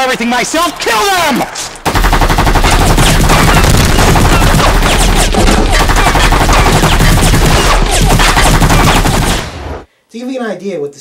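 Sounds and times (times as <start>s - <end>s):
automatic gunfire: 1.8s - 9.9s.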